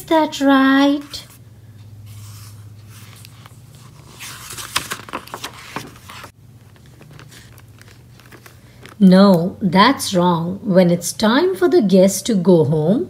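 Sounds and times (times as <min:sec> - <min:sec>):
steady low hum: 0:00.0 - 0:11.6
paper page rustling: 0:02.1 - 0:09.1.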